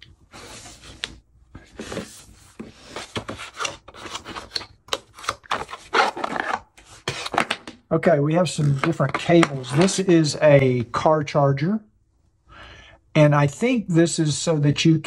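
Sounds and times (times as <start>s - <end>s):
cardboard rubbing and scraping: 0.3s - 1.0s, 1.7s - 7.5s.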